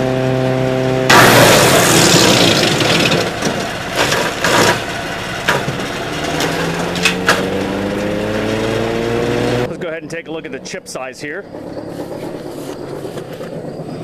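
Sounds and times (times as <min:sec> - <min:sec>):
chipper shredding a log: 0:00.0 - 0:10.7
gas engine labouring: 0:00.0 - 0:14.0
sharp wood cracks: 0:01.1 - 0:08.6.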